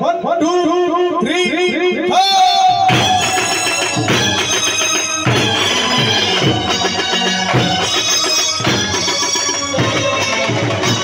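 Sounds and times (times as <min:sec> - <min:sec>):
reedy wind instrument melody: 0:02.2 - 0:11.0
heavy drum strokes: 0:02.7 - 0:11.0.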